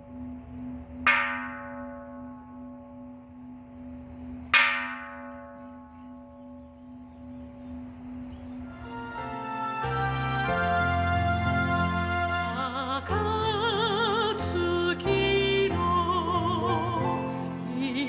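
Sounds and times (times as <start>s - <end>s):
low bell hum: 0.0s - 8.8s.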